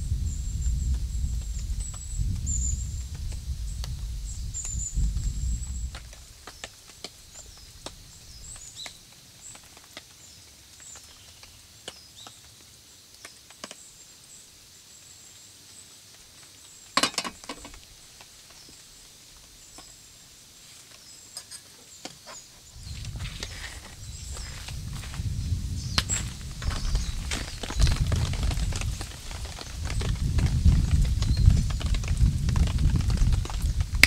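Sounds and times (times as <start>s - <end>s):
birds chirping: 18.5s - 32.2s.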